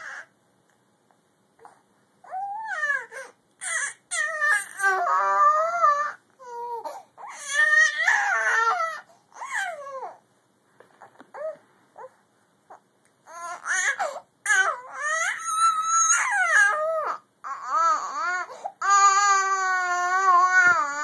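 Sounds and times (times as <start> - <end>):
infant wailing: 0.0 - 0.3, 2.2 - 10.2, 12.7 - 21.0
infant whimpering: 1.6 - 10.2, 11.0 - 21.0.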